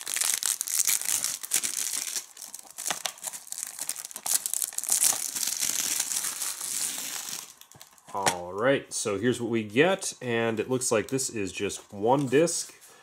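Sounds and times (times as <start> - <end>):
plastic shrink-wrap tearing and crinkling: 0.0 - 8.2.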